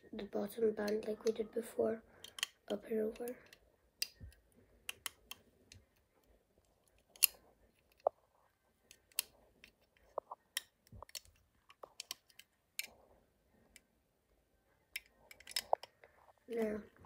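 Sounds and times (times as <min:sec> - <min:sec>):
rubber bands clicking on pegs: 0:02.1 - 0:08.2, 0:08.8 - 0:13.0, 0:14.8 - 0:16.1.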